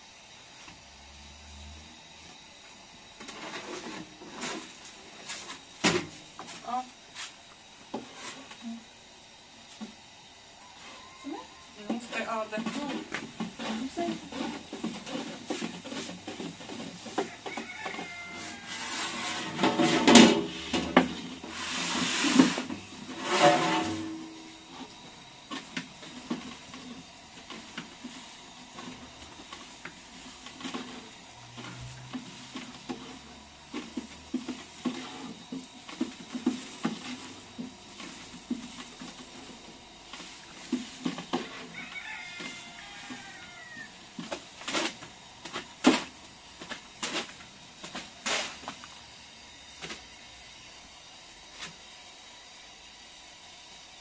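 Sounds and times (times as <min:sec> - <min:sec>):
rolling pin rolling dough: 0:11.8 - 0:45.5.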